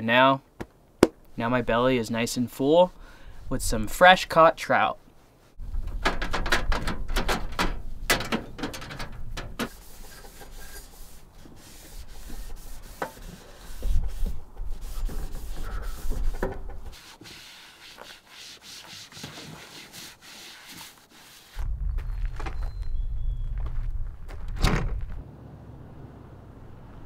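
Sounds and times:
paper towel wiping metal stove: 7.8 - 21.6
wipe rubbing plastic tabletop: 9.7 - 21.6.

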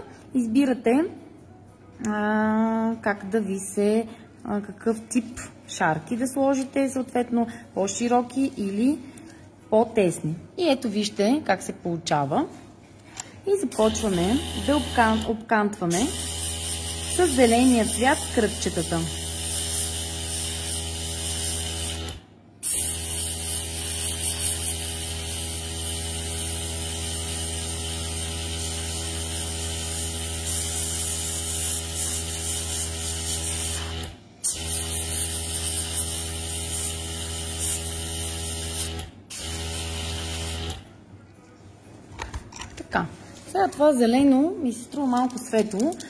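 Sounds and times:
compressor humming: 13.7 - 15.3
airbrush hissing: 16.1 - 18.3, 19.1 - 40.8.

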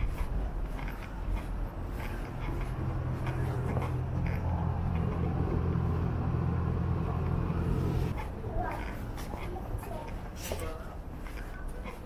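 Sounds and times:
low machine hum: 1.5 - 8.2.

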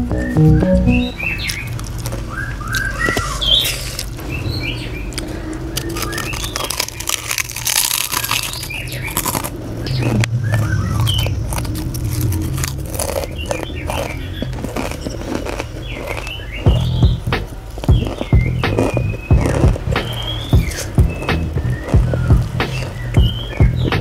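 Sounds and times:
background music: 0.0 - 1.2
high bird-like chirps: 0.0 - 1.8
crisps crunching in mouth: 1.4 - 4.3, 5.0 - 23.8.

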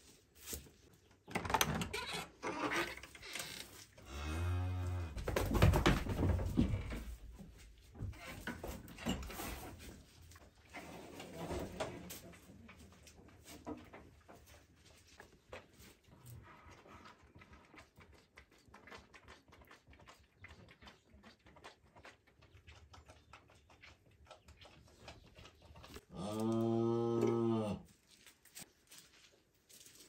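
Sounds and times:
calf suckling wet sucking: 14.6 - 27.5
cow mooing: 26.1 - 27.8.

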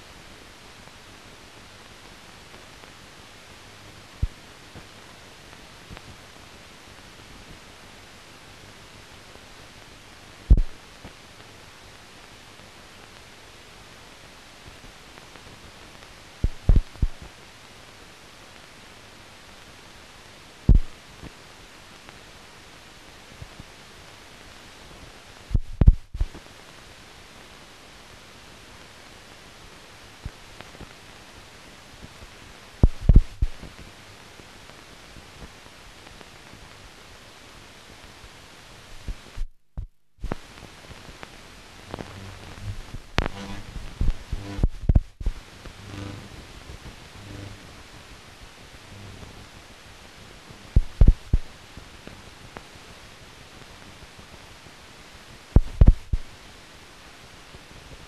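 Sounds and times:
film soundtrack hiss: 0.0 - 58.0
sharp pops: 10.5 - 10.8, 20.7 - 21.0, 25.5 - 26.4, 32.8 - 33.6, 41.9 - 45.4, 55.6 - 56.3.

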